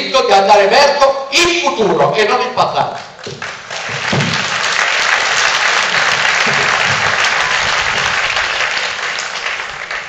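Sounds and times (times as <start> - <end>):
audience applauding: 3.2 - 10.0.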